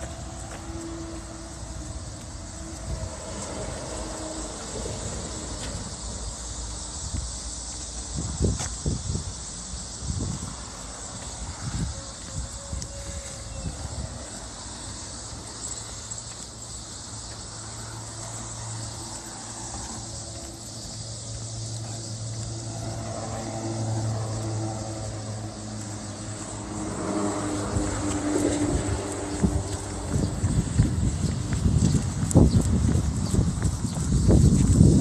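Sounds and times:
low engine drone: 17.8 - 30.6.

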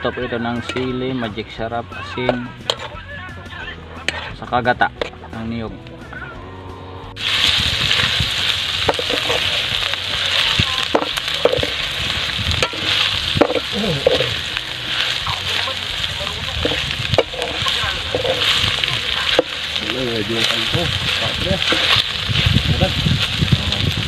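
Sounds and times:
meat sizzling in a metal pan: 0.0 - 5.5, 7.2 - 24.0
metal spatula scraping a pan: 2.3 - 3.0, 4.0 - 5.2, 7.2 - 22.5.

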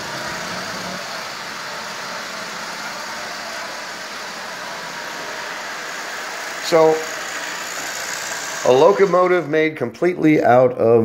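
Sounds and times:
wheels rumbling on rails: 0.0 - 7.0
toy train motor whirring: 0.0 - 9.7.

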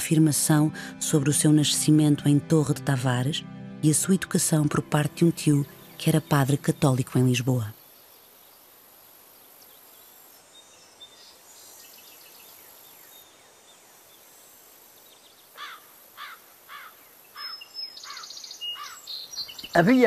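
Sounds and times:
steady countryside hiss: 0.0 - 20.0
bird calling with sweeping notes: 15.0 - 20.0
distant bird chirps: 15.0 - 20.0.

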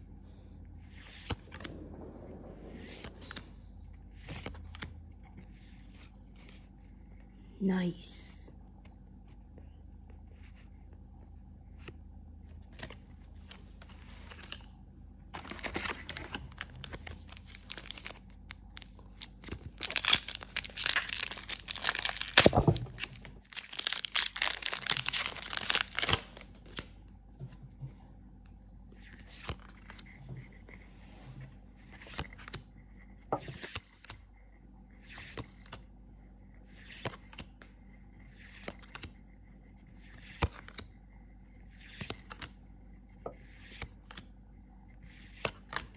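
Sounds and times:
foil wrapper tearing and crinkling: 15.4 - 26.6.

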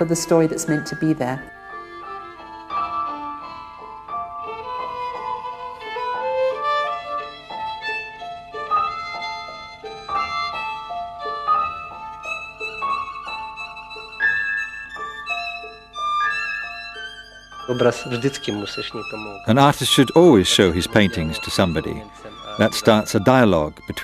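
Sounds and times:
instrumental background music: 0.0 - 24.0.

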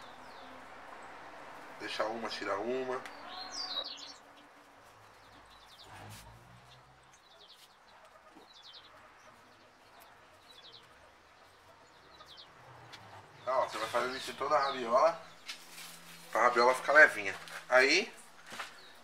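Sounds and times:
small bird chirping: 3.0 - 6.0, 6.6 - 16.0.

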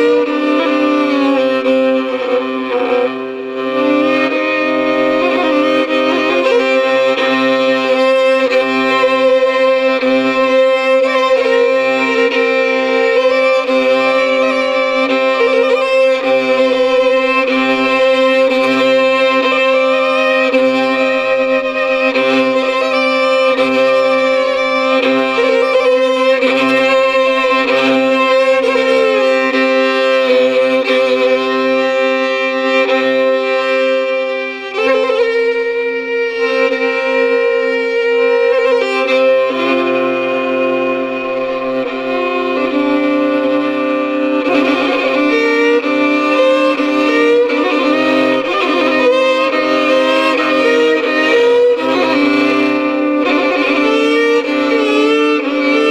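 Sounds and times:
solo fiddle with drone notes: 0.0 - 55.9.

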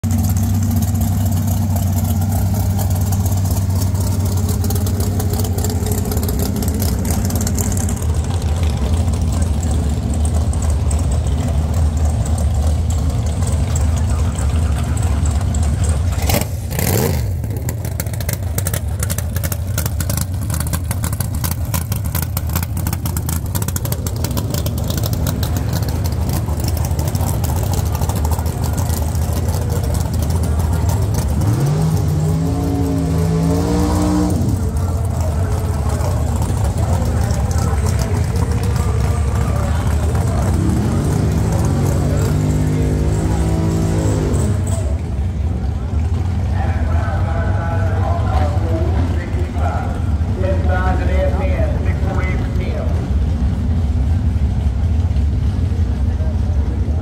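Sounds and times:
race cars idling: 0.0 - 57.0.

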